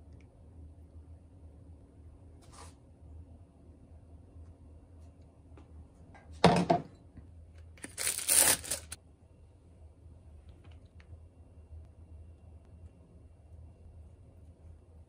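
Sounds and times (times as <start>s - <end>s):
food wrapper crinkling: 7.8s - 9.0s.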